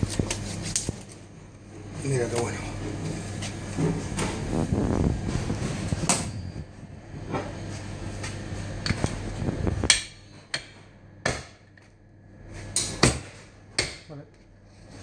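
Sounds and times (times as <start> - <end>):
cleaver chopping on wooden block: 11.2 - 11.6, 13.8 - 14.1.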